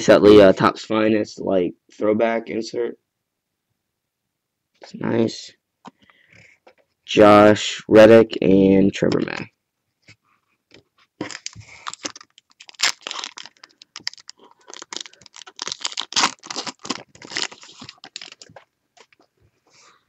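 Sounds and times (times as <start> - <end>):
foil wrapper crinkling and tearing: 11.2 - 19.2.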